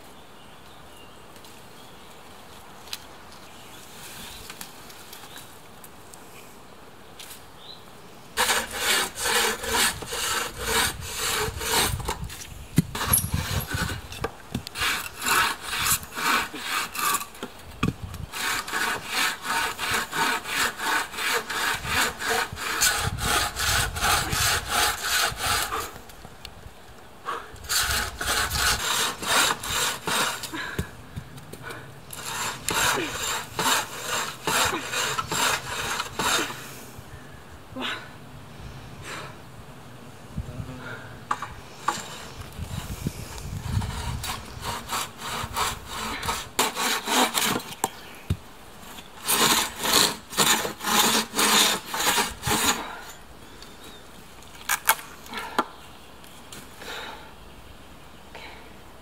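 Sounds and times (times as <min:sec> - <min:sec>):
bow saw cutting wood: 0:08.4 - 0:12.2, 0:12.9 - 0:17.5, 0:18.3 - 0:26.0, 0:27.6 - 0:30.6, 0:32.1 - 0:36.6, 0:41.3 - 0:47.8, 0:49.2 - 0:53.1.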